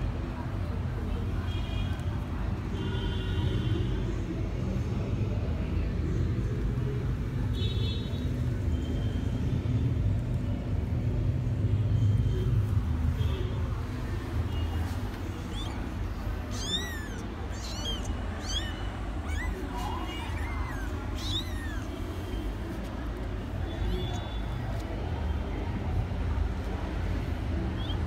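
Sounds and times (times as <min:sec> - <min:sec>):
kittens mewing: 0:15.1 - 0:22.6.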